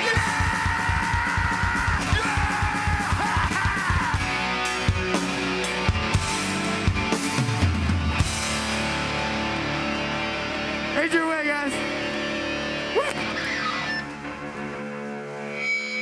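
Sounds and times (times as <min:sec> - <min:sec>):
fast driving drumming: 0:00.0 - 0:09.6
distorted electric guitars: 0:00.0 - 0:16.0.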